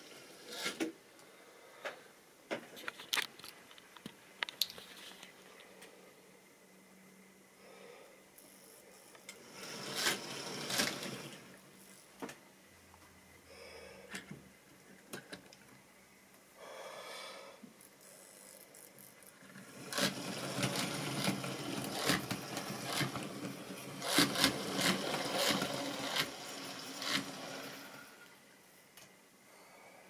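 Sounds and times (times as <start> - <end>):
model train wheels clattering: 9.4 - 11.5, 19.5 - 28.1.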